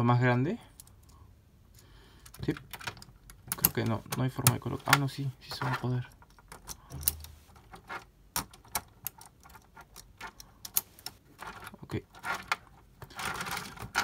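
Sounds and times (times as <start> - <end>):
plastic toy parts clicking: 2.2 - 5.0, 6.1 - 14.0.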